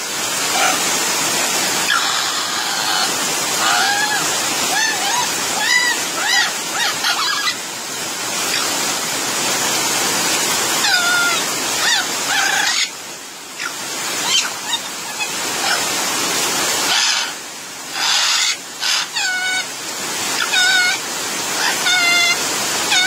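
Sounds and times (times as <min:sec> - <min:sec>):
heavy rain hissing: 0:00.0 - 0:23.0
parrots squawking: 0:00.5 - 0:00.9, 0:01.8 - 0:07.6, 0:08.5 - 0:08.7, 0:10.8 - 0:12.9, 0:13.6 - 0:15.9, 0:16.8 - 0:19.7, 0:20.4 - 0:21.0, 0:21.6 - 0:23.0.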